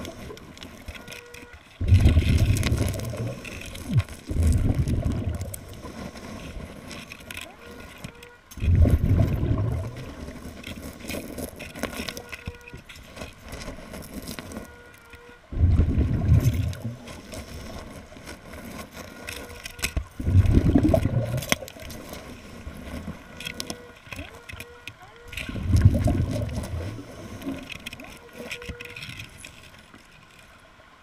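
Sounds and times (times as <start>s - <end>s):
underwater water noise: 0.0s - 31.0s
regulator bubbling exhalations: 1.8s - 6.0s, 8.7s - 10.1s, 15.5s - 17.2s, 20.2s - 21.7s, 25.5s - 27.7s.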